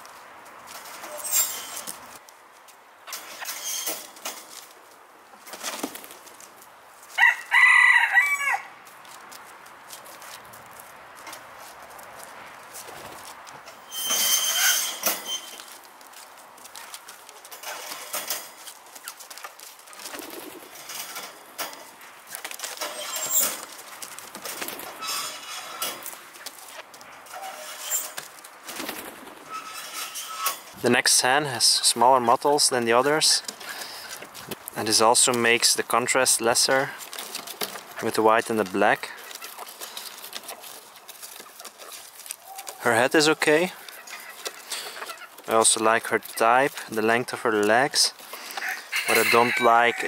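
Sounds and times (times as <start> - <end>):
rustling: 0.0 - 7.6, 8.8 - 50.0
rooster crowing: 7.2 - 8.8, 48.5 - 50.0
hens calling softly: 37.9 - 45.5.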